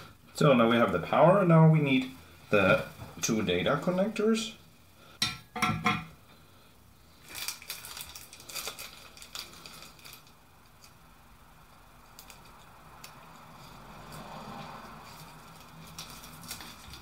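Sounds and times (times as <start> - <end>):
plastic bag crinkling: 7.1 - 11.0, 15.0 - 17.0.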